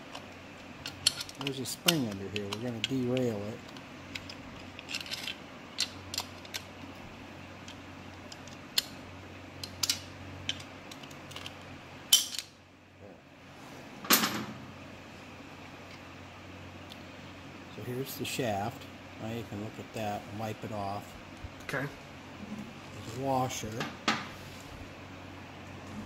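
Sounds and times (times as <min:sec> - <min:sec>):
metallic clicks of small parts: 0:00.0 - 0:06.8, 0:07.6 - 0:09.0, 0:09.6 - 0:12.6.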